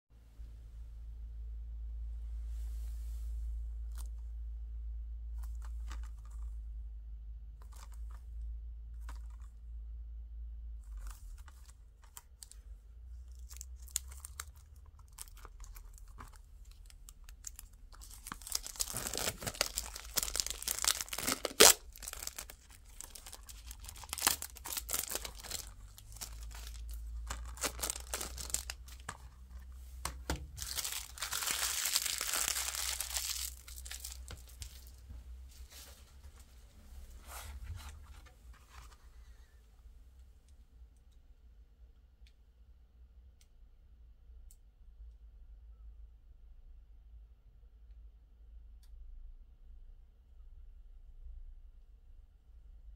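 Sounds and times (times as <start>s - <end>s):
low steady hum: 0.2s - 52.9s
plastic shrink wrap tearing: 13.3s - 29.3s, 30.0s - 35.0s
plastic wrap crumpled in hand: 13.3s - 29.3s, 30.5s - 35.0s
plastic wrap snapping: 13.4s - 29.3s, 30.0s - 35.0s.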